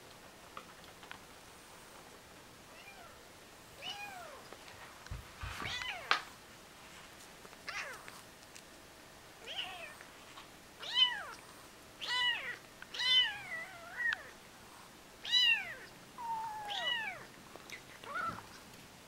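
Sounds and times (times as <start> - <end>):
kittens mewing: 15.2 - 18.5.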